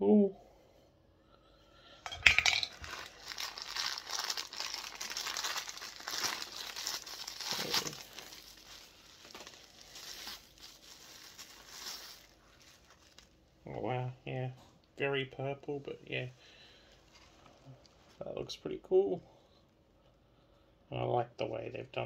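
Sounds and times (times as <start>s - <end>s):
plastic packaging crinkling: 2.1s - 13.4s.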